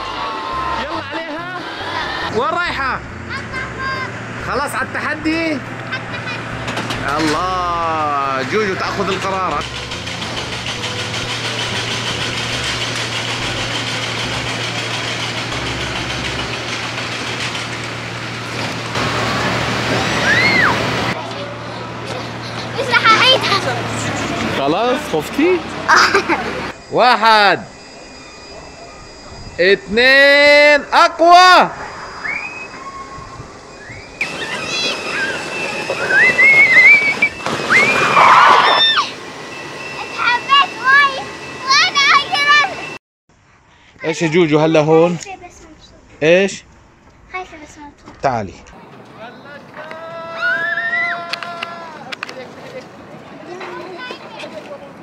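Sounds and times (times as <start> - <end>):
girls screaming with excitement: 0.0 - 2.3, 20.1 - 20.8, 32.2 - 39.2, 50.0 - 52.0
high squeal: 0.0 - 4.1, 19.3 - 20.9, 26.7 - 43.0, 50.2 - 52.0
ride machinery humming and hissing: 0.0 - 43.7.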